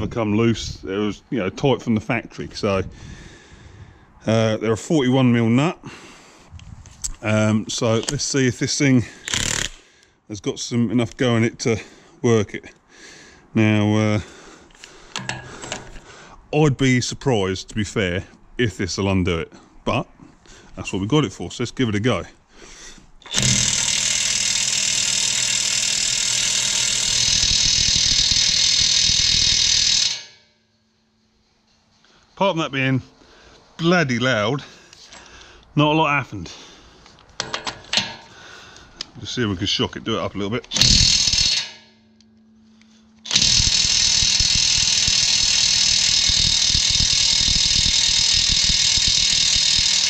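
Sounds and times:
impact wrench hammering: 9.2 - 9.8, 15.1 - 16.0, 23.2 - 30.5, 37.4 - 38.3, 40.7 - 42.1, 43.2 - 50.0.

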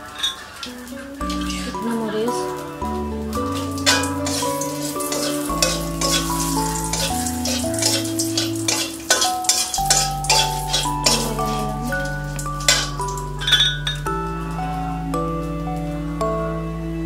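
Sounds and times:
background music: 0.0 - 17.0
spices sizzling in hot oil: 3.5 - 13.4
spatula scraping a metal pan: 3.9 - 12.0.

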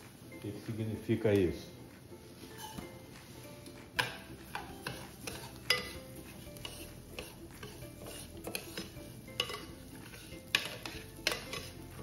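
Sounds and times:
spoon stirring dry rice: 0.0 - 12.0
spoon clinking on pan: 2.6 - 2.8, 4.0 - 11.9.

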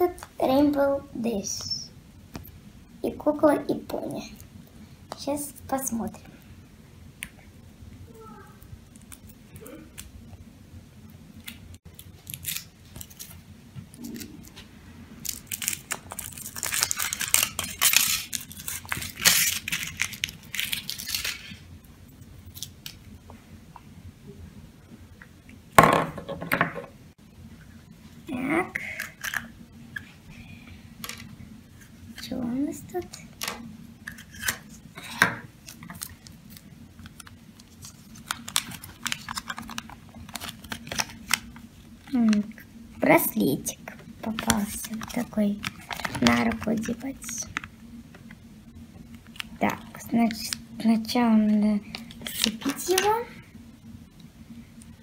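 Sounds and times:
faint steady hum: 0.0 - 55.0
foil wrapper crinkling: 11.9 - 13.4, 15.2 - 21.6, 35.6 - 42.6, 44.3 - 47.7, 51.9 - 53.1.

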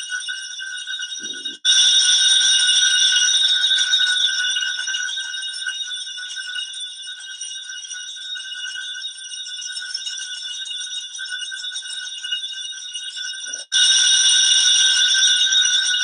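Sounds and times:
bells ringing: 1.2 - 2.0.

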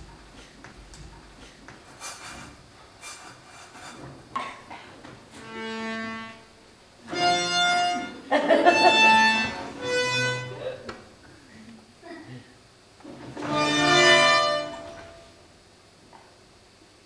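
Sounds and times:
long held musical notes: 5.5 - 10.9.

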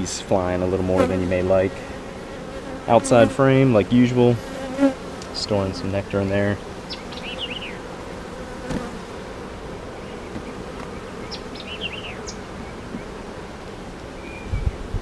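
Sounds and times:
honey bees buzzing: 0.0 - 15.0.

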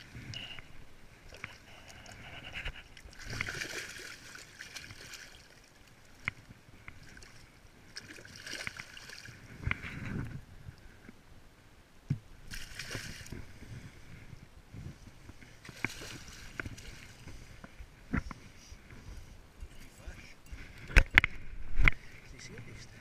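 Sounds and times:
water splashing in a landing net: 3.1 - 6.2, 8.0 - 9.4, 12.5 - 13.4, 15.7 - 17.2.

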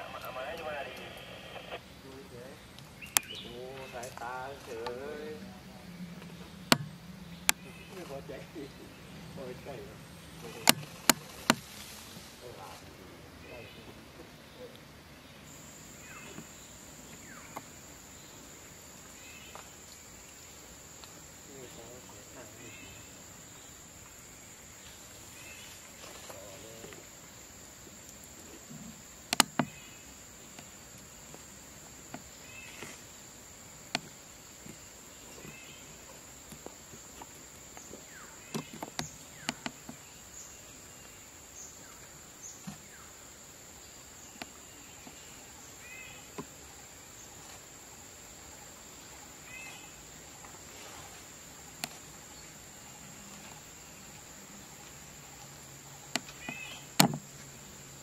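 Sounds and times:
insect chirps: 0.0 - 58.0
sharp clicks: 10.4 - 11.6, 29.3 - 29.8.

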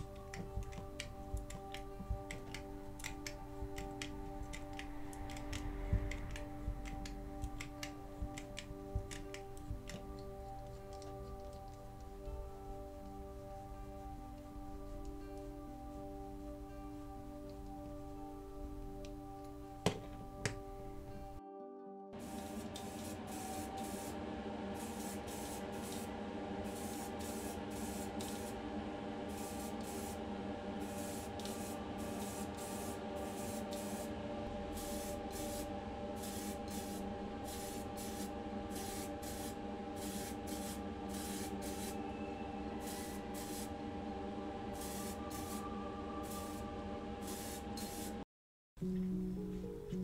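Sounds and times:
paint spraying hissing bursts: 0.0 - 10.0, 22.2 - 28.6, 29.2 - 30.2, 30.8 - 42.1, 42.8 - 43.8, 44.8 - 45.6, 46.2 - 48.2
spray booth fan humming: 0.0 - 16.4, 22.2 - 48.2.

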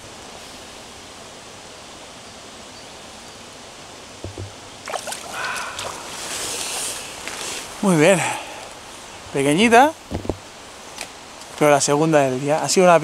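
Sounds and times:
river water rushing: 3.7 - 9.5
splashing at water's edge: 4.2 - 7.2.

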